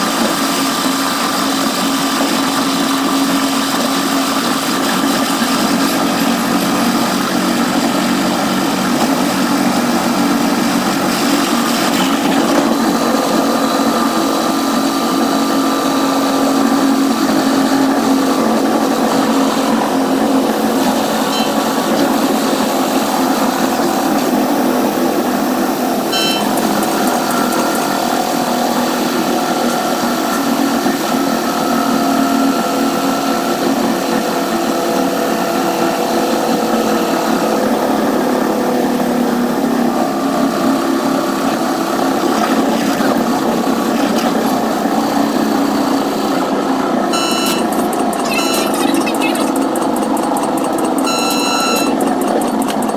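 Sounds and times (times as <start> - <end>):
train running at speed: 0.0 - 52.9
short high chirps: 21.3 - 21.7.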